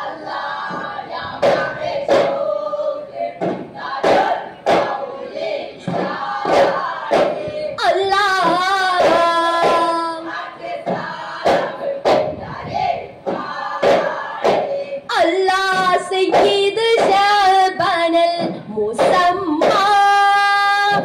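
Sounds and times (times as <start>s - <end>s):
boys singing in chorus: 0.0s - 21.0s
frame drum strokes: 0.1s - 2.5s, 3.1s - 17.5s.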